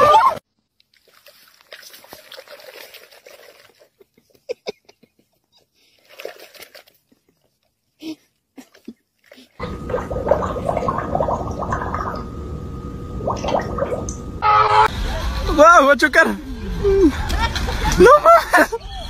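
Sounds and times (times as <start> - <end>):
water sloshing: 0.8 - 4.5, 5.8 - 7.8, 8.7 - 14.9
cat lapping water: 0.9 - 4.2, 9.2 - 12.3.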